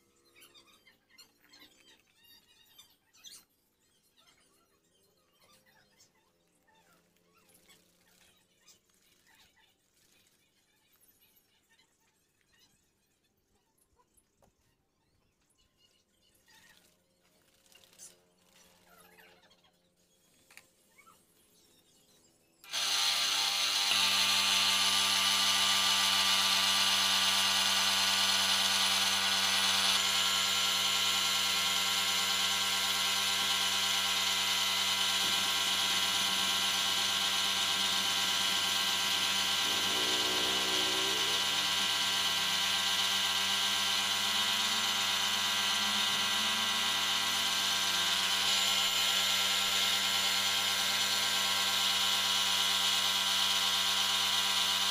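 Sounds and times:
machine hum: 0:22.7 - 0:54.9.

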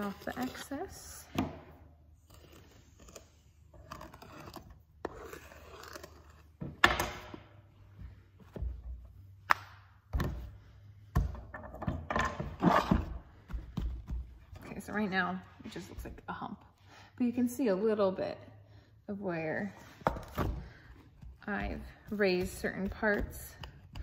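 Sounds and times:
clay tool scraping clay: 0:00.0 - 0:06.7, 0:12.4 - 0:16.8, 0:19.8 - 0:24.0.

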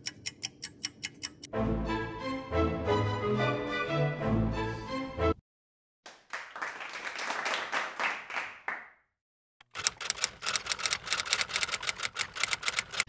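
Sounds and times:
music: 0:01.5 - 0:05.4
people clapping: 0:06.0 - 0:09.0.

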